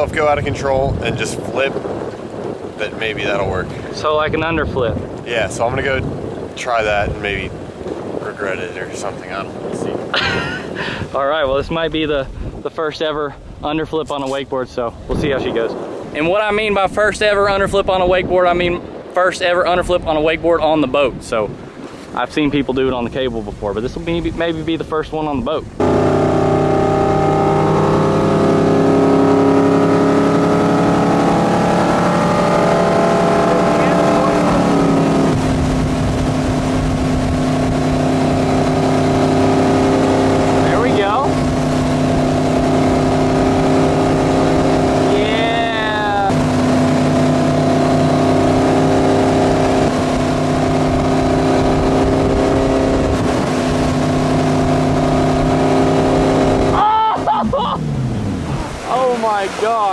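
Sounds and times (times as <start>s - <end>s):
wake water rushing: 0.0s - 59.9s
wind: 0.0s - 59.9s
boat engine running: 25.7s - 59.9s.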